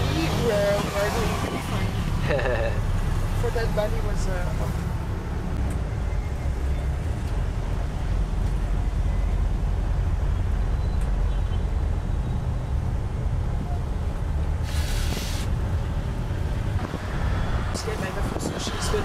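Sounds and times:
road and engine rumble: 0:00.0 - 0:19.0
short hiss: 0:14.6 - 0:15.5.

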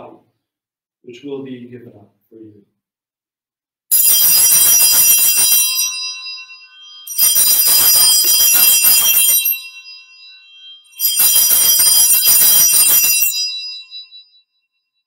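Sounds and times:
small bells jangling: 0:03.9 - 0:14.6.

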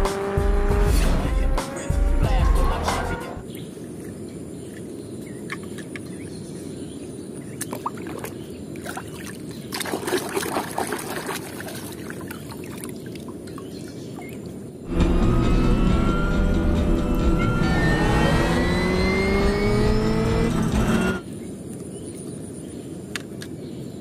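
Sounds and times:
racing car engine: 0:00.0 - 0:03.4, 0:14.9 - 0:21.2
hand splashing muddy water: 0:07.6 - 0:13.2.

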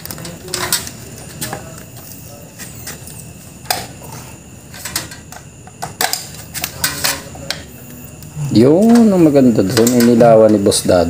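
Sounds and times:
sharp clicks and clinks of tools: 0:08.8 - 0:10.6.

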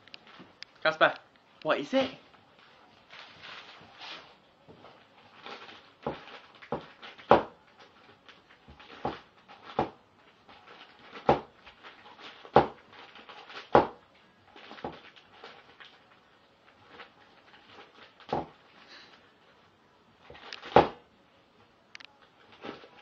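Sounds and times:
wrapping paper crinkling: 0:00.0 - 0:20.8, 0:22.1 - 0:23.0.

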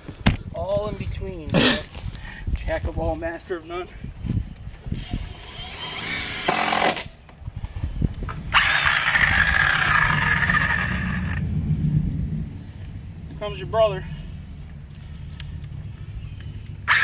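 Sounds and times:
power tool whining: 0:05.0 - 0:07.1, 0:08.5 - 0:11.4.

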